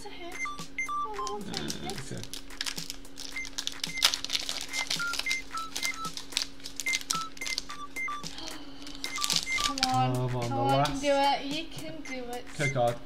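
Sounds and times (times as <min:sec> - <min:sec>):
light background music: 0:00.0 - 0:13.0
foil wrapper crinkling: 0:01.5 - 0:10.1.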